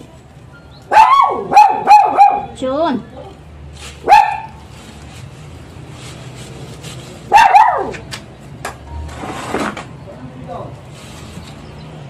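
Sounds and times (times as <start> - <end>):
dog barking: 0.9 - 2.6, 4.0 - 4.6, 7.3 - 8.0.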